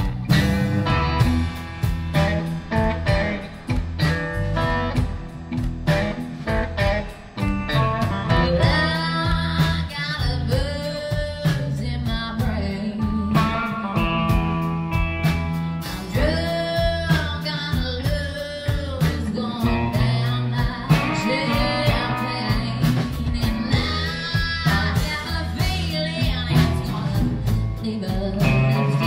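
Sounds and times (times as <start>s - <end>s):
live country band playing: 0.0s - 29.0s
woman singing: 8.0s - 14.1s, 16.1s - 29.0s.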